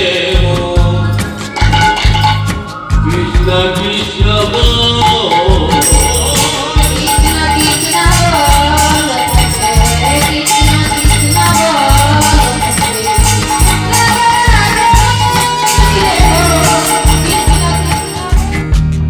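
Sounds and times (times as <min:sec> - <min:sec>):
man singing: 0:00.0 - 0:01.3, 0:03.0 - 0:10.2, 0:10.8 - 0:17.8
hand percussion rattling: 0:01.1 - 0:02.6, 0:05.1 - 0:18.6
harmonium: 0:05.0 - 0:18.9
barrel drum beating: 0:05.5 - 0:18.6.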